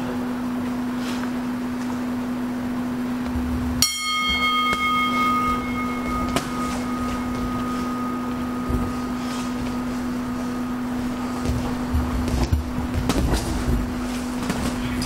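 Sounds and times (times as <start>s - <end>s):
steady low hum: 0.0s - 15.0s
boxing bell ringing: 3.8s - 12.1s.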